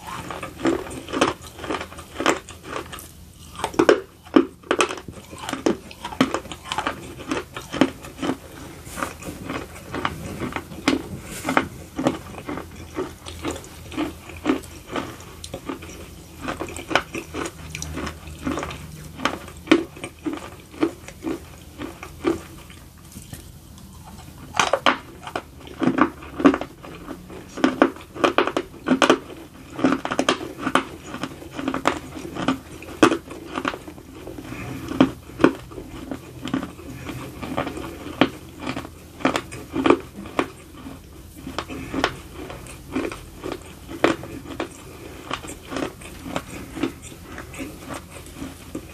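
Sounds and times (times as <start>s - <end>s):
crunching and chewing clay: 0.0s - 48.9s.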